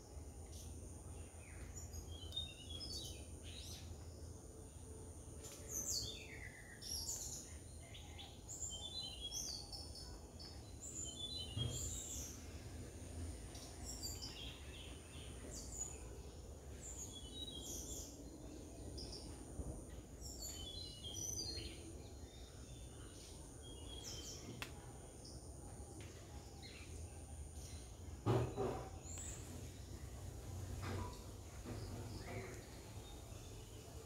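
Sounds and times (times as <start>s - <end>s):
birds chirping: 13.5s - 34.0s.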